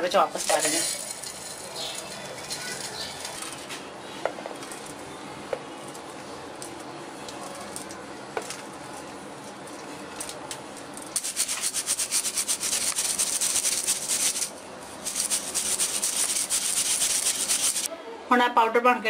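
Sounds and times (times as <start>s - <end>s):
sieve mesh rasping: 0.4s - 3.7s, 11.2s - 17.9s.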